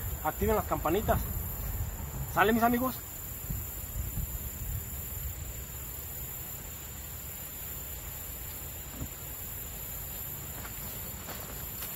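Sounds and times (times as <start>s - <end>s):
constant high hiss: 0.0s - 11.9s
soft bumps: 8.8s - 11.9s.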